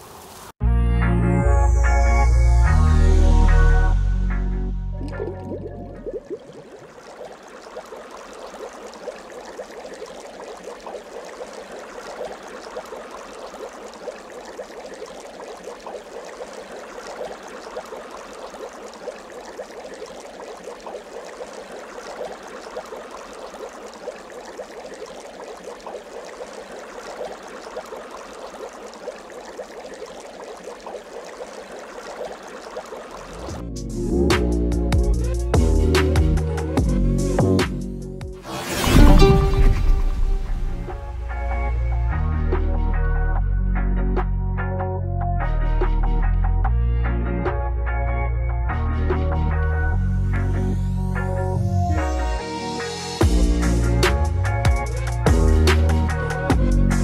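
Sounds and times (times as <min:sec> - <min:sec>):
water bubbling and fizzing: 0:00.0 - 0:00.6, 0:04.9 - 0:33.7, 0:38.3 - 0:42.8.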